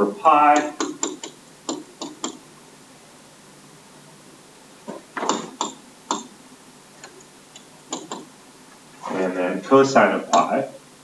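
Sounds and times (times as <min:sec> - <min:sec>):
low hiss: 0:00.0 - 0:11.0
stylus tapping on tablet screen: 0:00.6 - 0:02.4, 0:04.9 - 0:06.3, 0:07.0 - 0:08.3.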